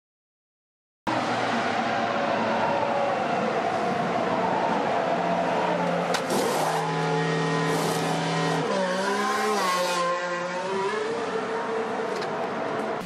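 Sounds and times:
race car engine: 1.1 - 13.0
pneumatic wheel guns whirring: 7.6 - 8.2.

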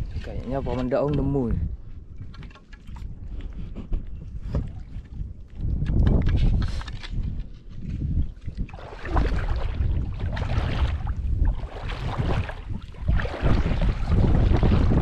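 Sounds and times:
wind rumbling on microphone: 0.0 - 15.0
seawater sloshing and splashing: 2.2 - 3.6, 8.3 - 15.0.

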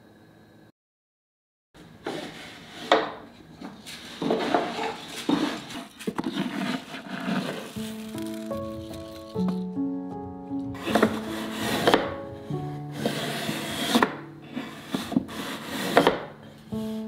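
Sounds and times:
wooden drawer sliding: 2.0 - 3.2, 3.9 - 9.6, 10.7 - 17.0
hand rustling in dry rice: 7.5 - 9.4
wooden knocks: 8.5 - 12.4.

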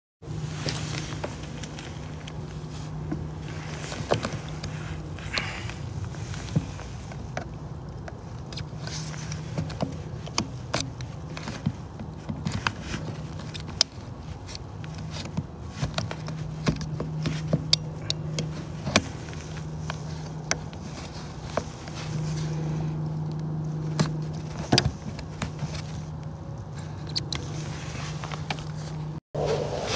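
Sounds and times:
steady low hum: 27.6 - 29.9.

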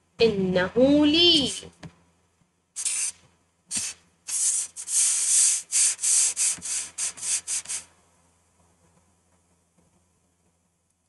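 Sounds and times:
scratchy rubbing noises: 3.7 - 7.8.

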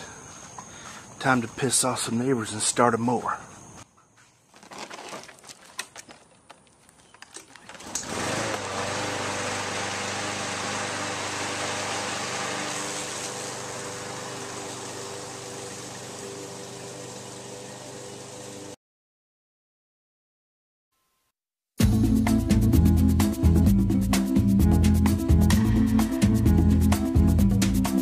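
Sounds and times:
lawn mower engine running: 4.6 - 18.8.

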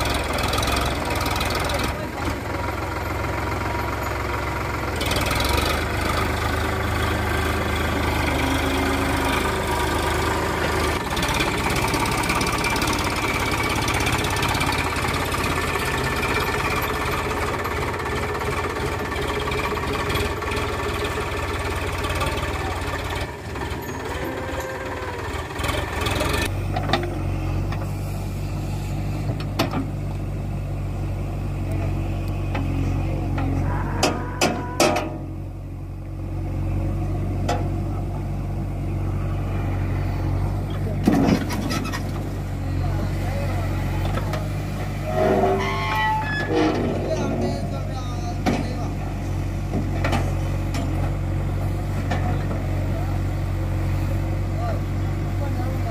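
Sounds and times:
diesel engines running: 0.0 - 55.9.

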